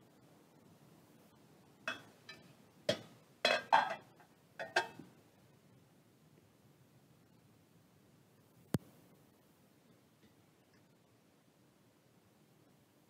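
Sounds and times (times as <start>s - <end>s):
metal plates clinking: 1.9s - 5.0s.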